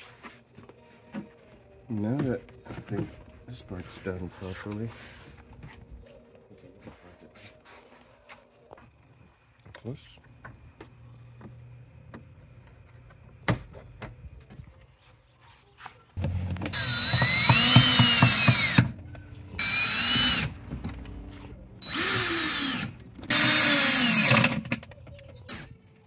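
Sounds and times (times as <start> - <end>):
cordless drill driving a fastener: 16.6 - 18.9, 19.6 - 20.6, 21.8 - 24.8.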